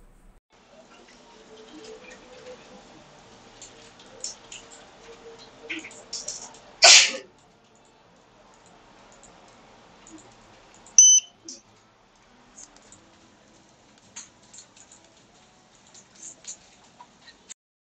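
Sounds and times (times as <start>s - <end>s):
short electronic beep: 11.0s - 11.3s.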